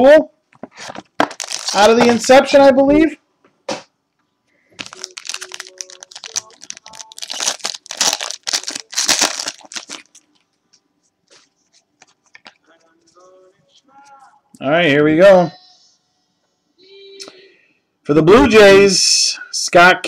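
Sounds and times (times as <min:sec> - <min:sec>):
wrapper crinkling and tearing: 0:00.8 - 0:02.3, 0:04.8 - 0:10.5.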